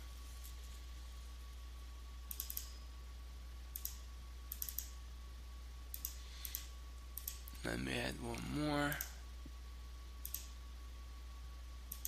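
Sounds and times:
low electrical hum: 0.0s - 12.0s
mouse clicks: 2.3s - 2.8s, 3.7s - 5.0s, 5.9s - 7.6s, 10.2s - 10.6s.

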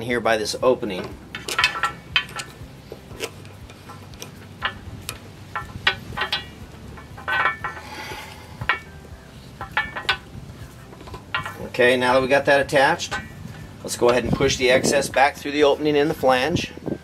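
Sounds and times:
metallic clicks and clinks: 0.9s - 11.8s.

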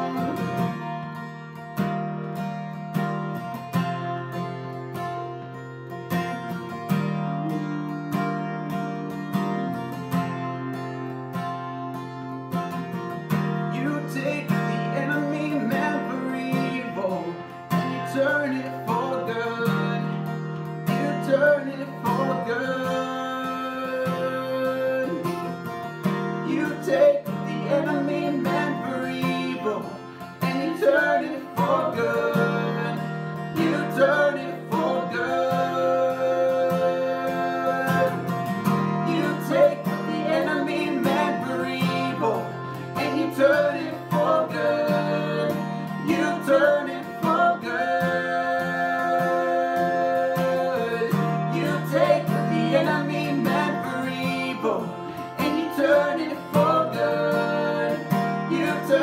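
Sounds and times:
woman singing: 0.0s - 0.8s, 26.5s - 33.0s, 39.0s - 59.0s
man singing: 0.0s - 0.9s, 7.4s - 10.2s, 13.7s - 25.8s, 26.4s - 59.0s
acoustic guitar strumming: 0.0s - 59.0s.

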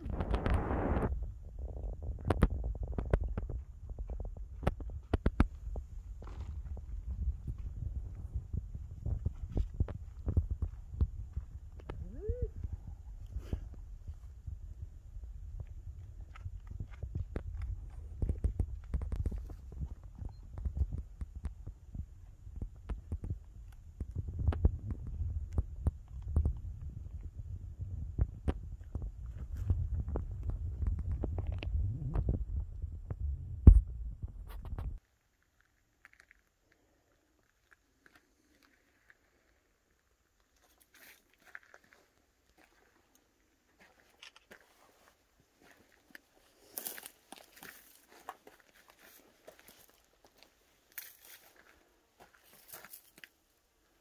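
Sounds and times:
wind buffeting microphone: 0.0s - 35.0s
faint crunches and clicks: 34.4s - 39.6s.

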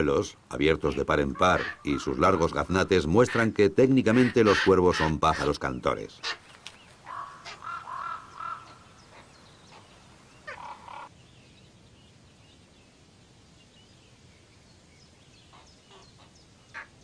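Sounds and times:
raven nestlings begging calls: 0.7s - 6.4s, 7.0s - 11.1s.

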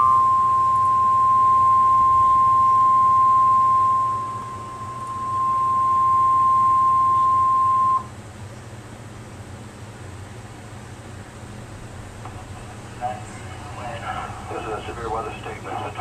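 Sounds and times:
high-pitched alarm tone: 0.0s - 8.1s
radio hiss: 12.3s - 16.0s.

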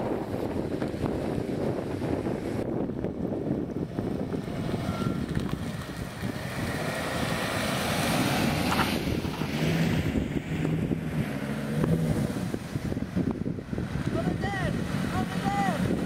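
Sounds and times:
van engine humming: 0.0s - 16.0s
wind buffeting microphone: 0.0s - 16.0s
car driving past: 4.6s - 13.0s.

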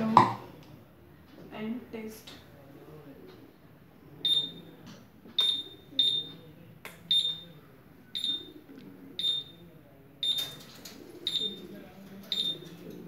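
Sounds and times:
short high-pitched beeps: 4.3s - 4.6s, 5.4s - 6.4s, 7.1s - 7.6s, 8.2s - 8.5s, 9.2s - 9.6s.

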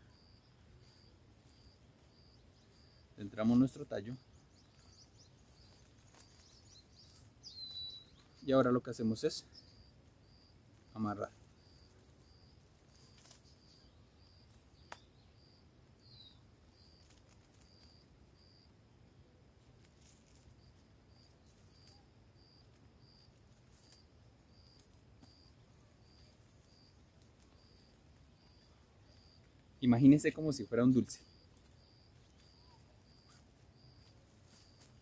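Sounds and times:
insect chirping: 0.0s - 35.0s.

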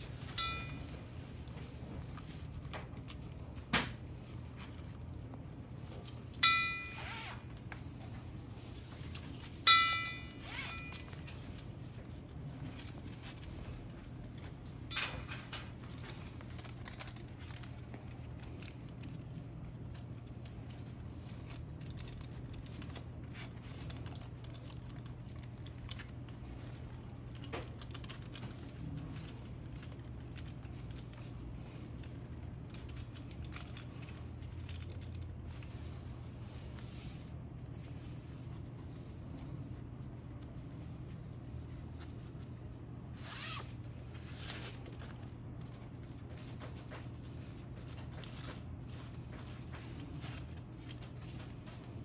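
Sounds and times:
steady low hum: 0.0s - 52.0s
sharp metallic clink: 0.4s - 1.0s, 6.4s - 7.4s, 9.7s - 11.1s.

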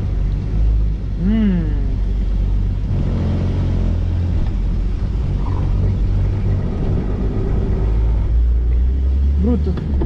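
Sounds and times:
engine rumbling: 0.0s - 10.0s.

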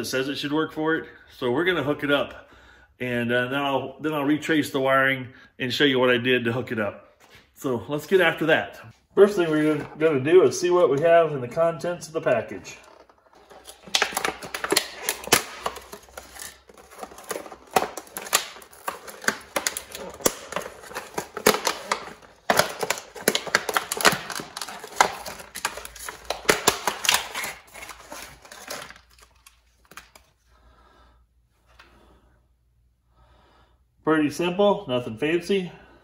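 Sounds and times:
packaging crackling and clicking: 12.8s - 30.3s.

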